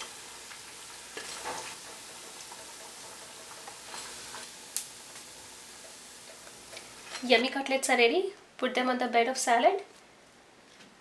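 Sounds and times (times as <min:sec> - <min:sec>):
hot oil sizzling: 0:00.0 - 0:08.2.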